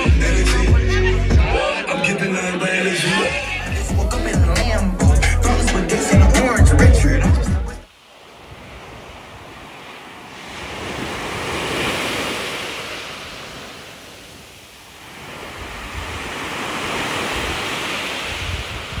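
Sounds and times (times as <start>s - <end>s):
waves breaking on a beach: 7.8s - 19.0s.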